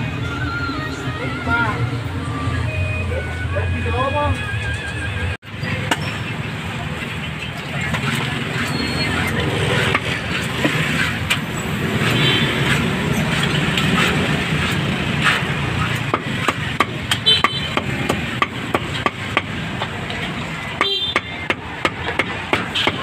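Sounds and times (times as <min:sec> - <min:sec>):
street traffic: 0:00.0 - 0:23.0
cleaver chopping meat: 0:12.0 - 0:19.9, 0:20.8 - 0:23.0.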